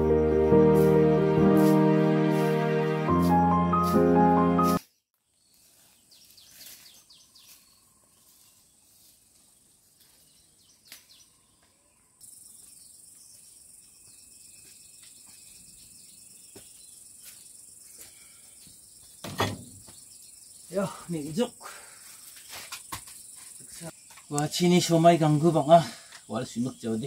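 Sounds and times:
bird chirps: 0:04.8 - 0:08.8, 0:10.2 - 0:21.2.

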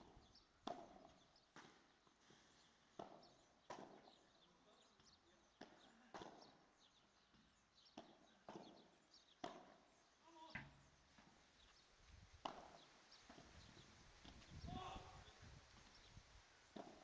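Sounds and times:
racket hitting ball: 0:00.6 - 0:01.8, 0:06.1 - 0:06.5, 0:08.0 - 0:09.8, 0:12.4 - 0:13.5, 0:16.7 - 0:17.0.

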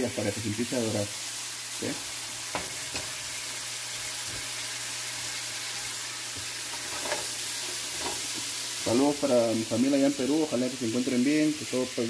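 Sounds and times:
paste sizzling in a frying pan: 0:00.0 - 0:12.0
spatula tapping a pan: 0:02.5 - 0:03.1.

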